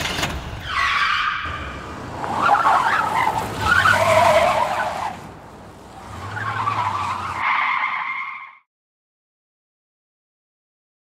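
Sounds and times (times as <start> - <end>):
car tyres squealing: 0.5 - 8.7.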